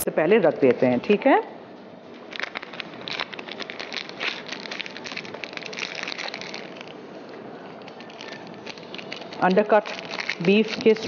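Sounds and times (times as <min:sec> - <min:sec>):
spaghetti packaging crackling: 0:02.2 - 0:11.0.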